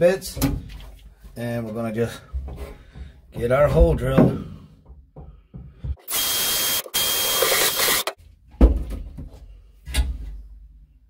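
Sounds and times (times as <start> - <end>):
drill grinding through sheet steel: 6.0 - 8.2.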